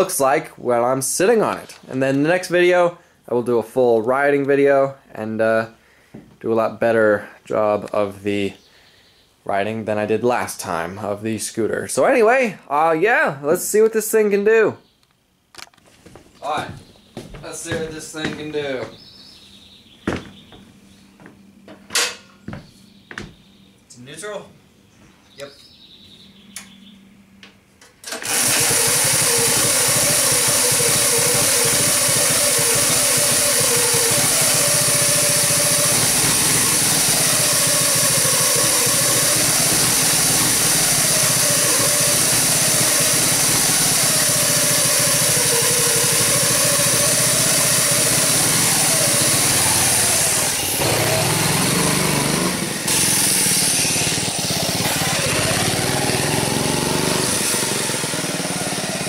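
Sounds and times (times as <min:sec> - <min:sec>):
drive chain and pulley whirring: 0:28.1 - 0:59.0
small engine running loudly: 0:28.2 - 0:59.0.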